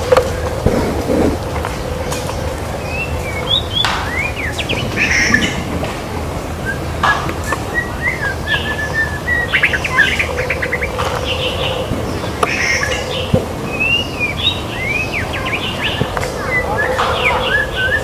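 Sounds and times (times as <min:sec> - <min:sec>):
low hum: 0:00.0 - 0:09.2
bird singing whistles: 0:02.8 - 0:05.6, 0:06.6 - 0:11.8, 0:12.4 - 0:18.0.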